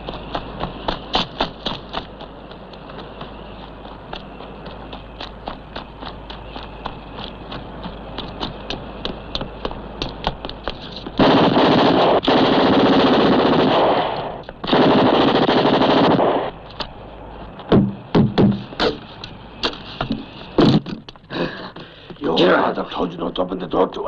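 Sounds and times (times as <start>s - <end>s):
running footsteps: 0.0s - 11.4s, 16.4s - 22.5s
sharp bangs: 11.1s - 16.6s, 17.6s - 19.1s
submachine gun fire: 11.2s - 16.5s.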